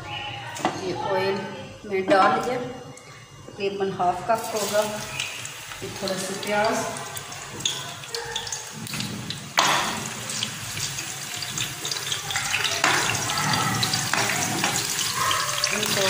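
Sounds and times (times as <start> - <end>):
onions sizzling in hot oil: 4.4 - 16.0.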